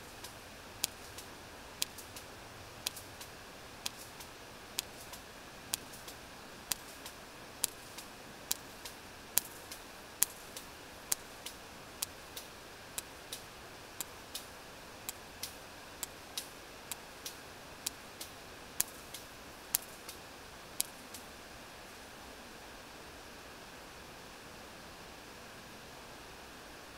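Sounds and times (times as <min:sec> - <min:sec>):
whale echolocation clicks: 0:00.0 - 0:14.5, 0:15.1 - 0:20.2, 0:20.8 - 0:21.3
sea noise hiss: 0:00.0 - 0:26.9.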